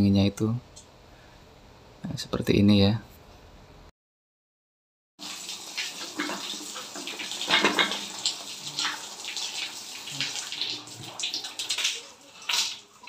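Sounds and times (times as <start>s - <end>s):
water running and splashing: 5.2s - 13.0s.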